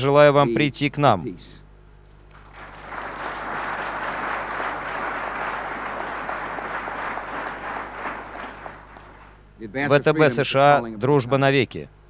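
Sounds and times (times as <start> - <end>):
audience applauding: 2.3 - 9.4.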